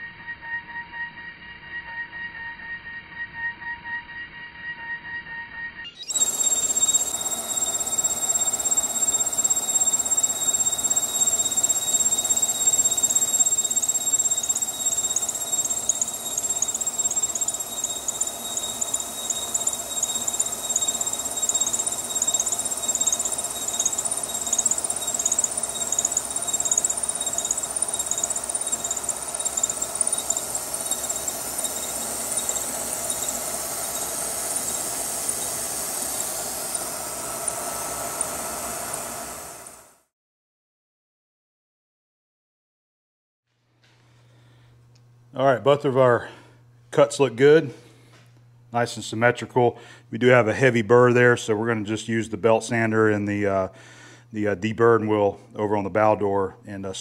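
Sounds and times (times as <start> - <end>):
milling cutter whining: 6.0 - 39.8.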